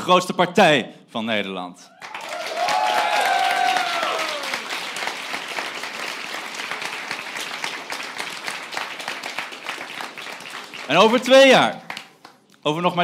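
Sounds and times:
shouted cheers: 1.9s - 4.8s
crowd applauding: 1.9s - 12.4s.

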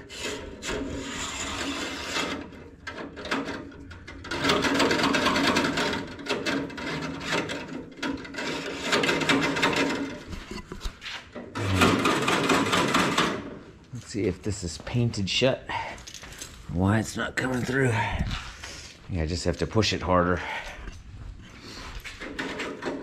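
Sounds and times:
metal cable scraping through hole: 0.0s - 13.4s.

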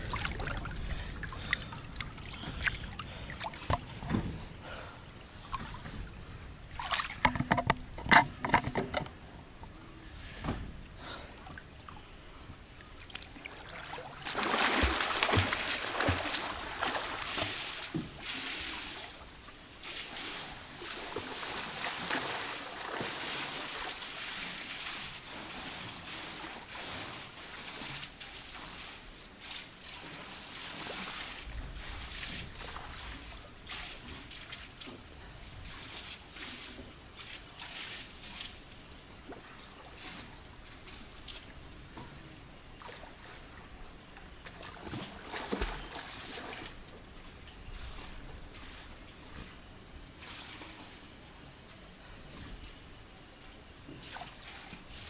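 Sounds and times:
pool water splashing: 0.0s - 7.6s, 9.4s - 51.9s, 53.1s - 55.0s.

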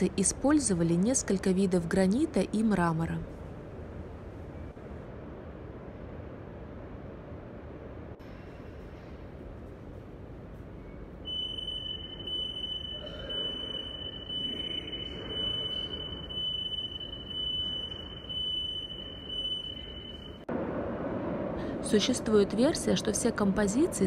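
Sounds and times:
metro platform ambience: 0.0s - 24.0s
high-pitched electronic whine: 11.3s - 20.5s.

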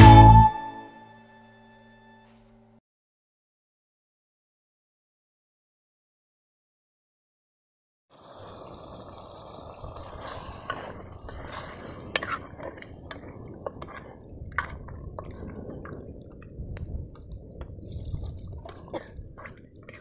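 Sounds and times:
curry cooking in a pot: 8.1s - 16.0s.

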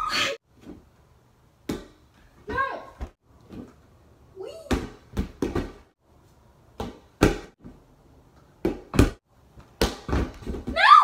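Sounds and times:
rubber ball slaps and thumps: 6.8s - 7.6s, 8.6s - 10.8s.

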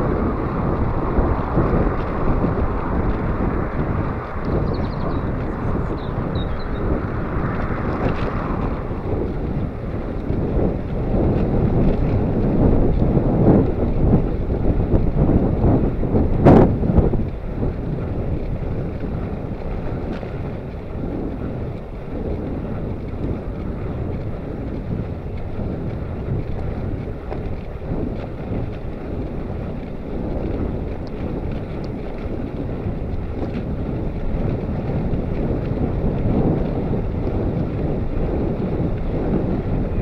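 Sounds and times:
wind buffeting the microphone: 0.0s - 40.0s.

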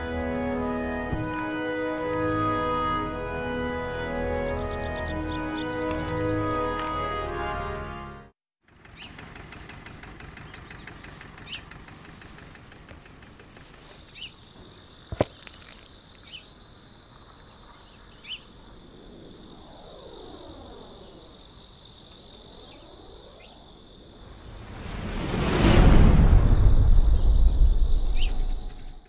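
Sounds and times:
insects chirring: 8.9s - 29.0s
short insect chirps: 10.7s - 29.0s
slow sweeping sound: 22.5s - 29.0s.

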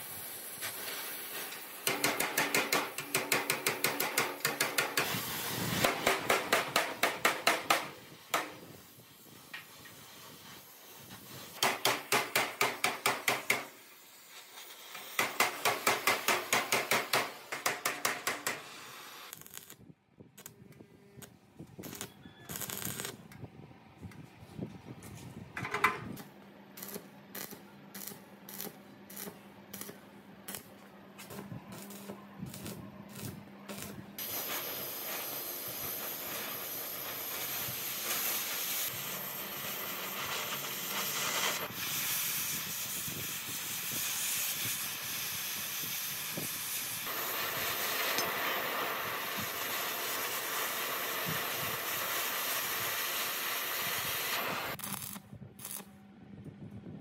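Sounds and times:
spraying hiss: 0.0s - 3.2s, 34.2s - 54.8s.

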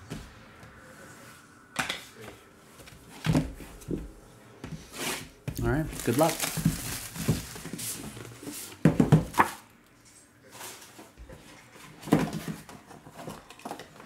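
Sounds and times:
plastic wrap crinkling: 5.6s - 8.4s.

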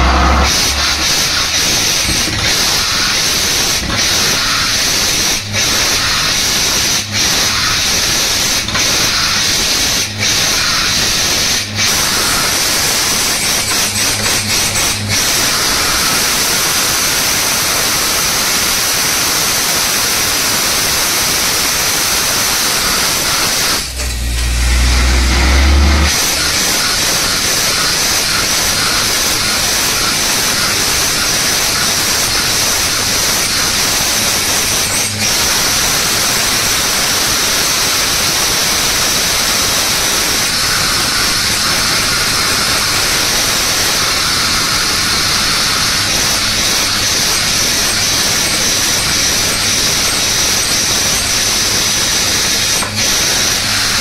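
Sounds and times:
deep rumble: 0.0s - 1.6s, 23.8s - 26.2s
compressed air hissing from bore: 0.0s - 54.0s
drilling rig engine: 0.0s - 54.0s.

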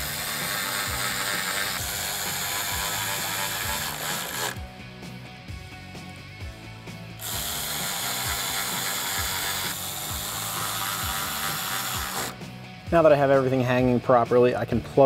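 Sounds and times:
cordless ratchet driving screw: 0.0s - 4.7s, 7.2s - 12.4s
faint background music with beat: 0.0s - 15.0s.

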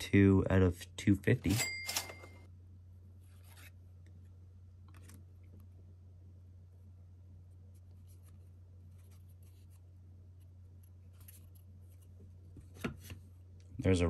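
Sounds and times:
steady low hum: 0.0s - 14.0s
trading cards rustling: 1.4s - 2.4s, 10.4s - 12.2s.

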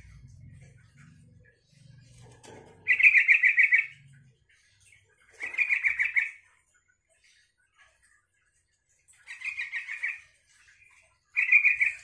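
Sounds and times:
bird singing rapid repeated notes: 0.0s - 12.0s.

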